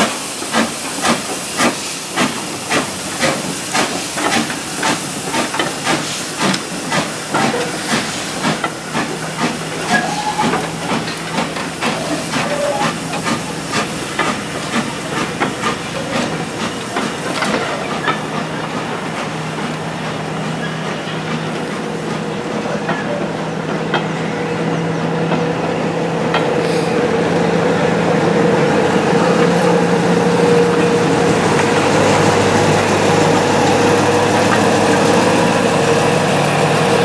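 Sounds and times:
steam hiss: 0.0s - 23.6s, 26.5s - 27.2s
steam locomotive chuffing: 0.0s - 37.0s
train wheels rolling on track: 0.0s - 37.0s.

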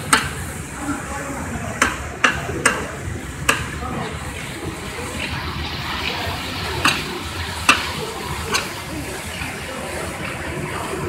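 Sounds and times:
sharp knocks: 1.8s - 2.9s
popcorn stirring rustling hiss: 3.2s - 11.0s.

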